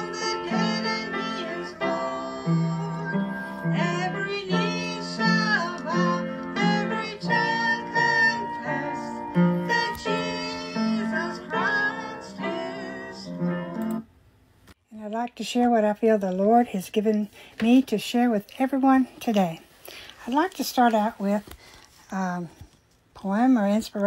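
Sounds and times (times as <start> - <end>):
woman singing: 0.0 - 13.8.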